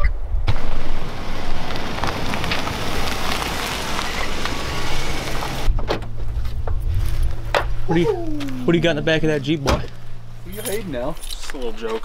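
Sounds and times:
vehicle engine idling: 0.6s - 12.0s.

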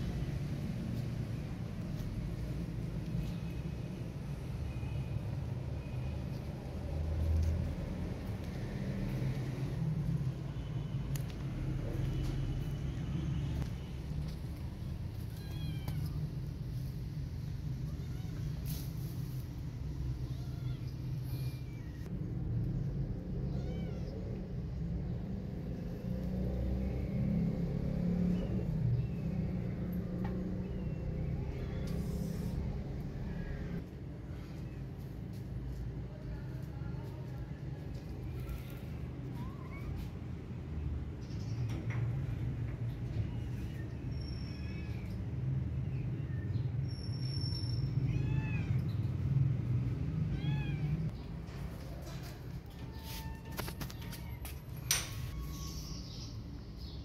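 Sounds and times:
cat meowing: 15.2s - 16.3s, 23.4s - 24.3s, 47.9s - 48.9s, 50.3s - 51.1s, 52.8s - 54.4s.

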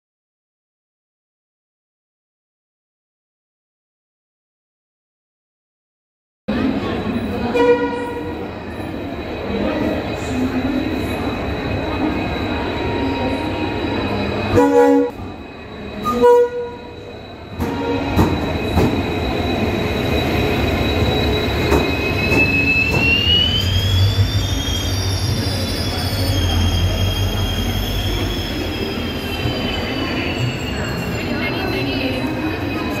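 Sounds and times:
train wheel squeal: 6.6s - 33.0s
train horn blasts: 7.5s - 8.4s, 14.5s - 15.2s, 16.0s - 16.9s, 17.6s - 18.2s.

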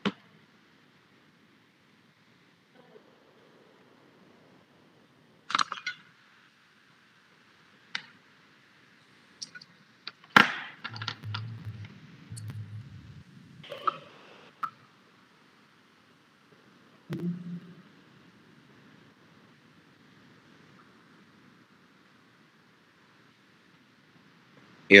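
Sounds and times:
sharp clicks and knocks: 10.8s - 13.2s
brief low rumble: 11.0s - 13.7s.

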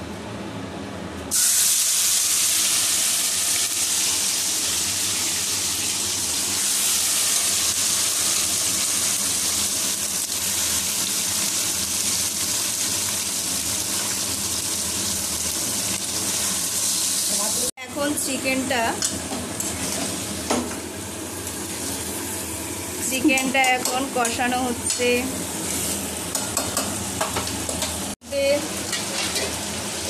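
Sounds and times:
chicken sizzling in hot oil: 1.3s - 18.2s, 19.1s - 23.1s, 25.2s - 30.0s.

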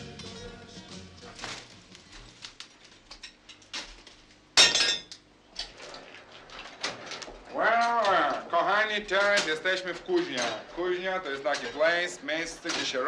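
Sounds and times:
forge fire crackling: 0.0s - 4.6s, 5.2s - 13.0s.

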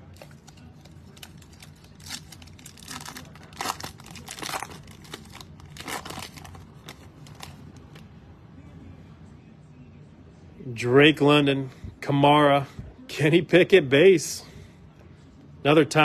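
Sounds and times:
foil wrapper crinkling and tearing: 0.1s - 7.6s.

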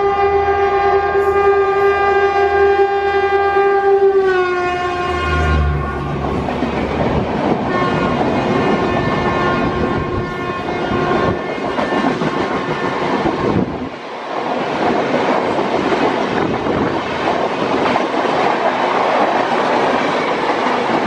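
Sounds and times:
locomotive horn blast: 0.0s - 6.8s, 7.6s - 13.6s.

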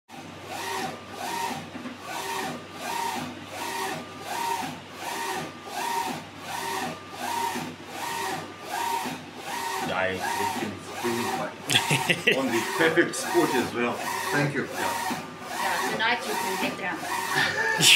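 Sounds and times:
printer motor whining: 0.5s - 17.9s.

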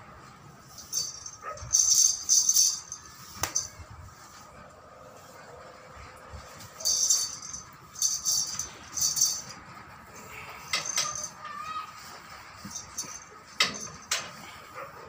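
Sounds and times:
metallic jingling and rattling: 0.6s - 4.1s, 6.4s - 14.9s.

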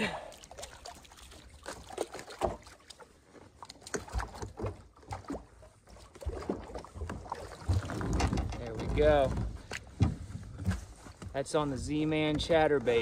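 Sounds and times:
water splashing: 0.0s - 13.0s
thumps against kayak hull: 7.2s - 11.4s.

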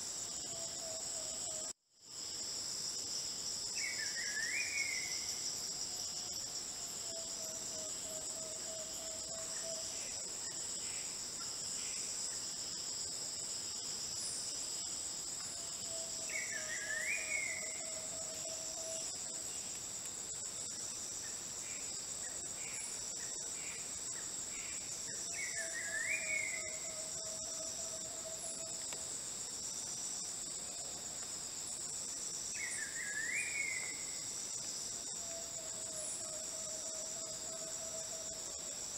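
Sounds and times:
insect chorus: 0.0s - 38.9s.

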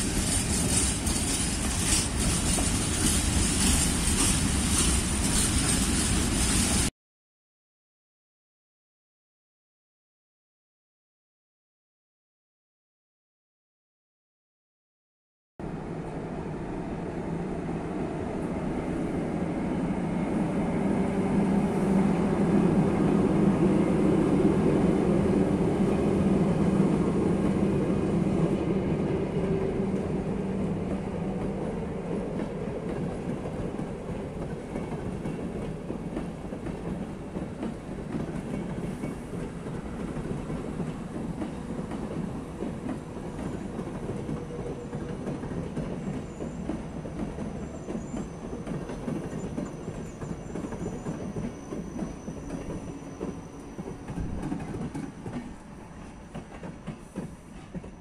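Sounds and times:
train coaches rolling on rails: 0.0s - 6.9s, 19.6s - 58.0s.

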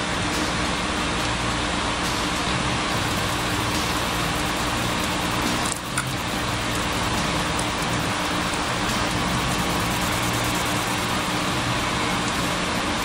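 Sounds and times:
low hum: 0.0s - 12.6s
fan hiss: 0.0s - 13.0s.

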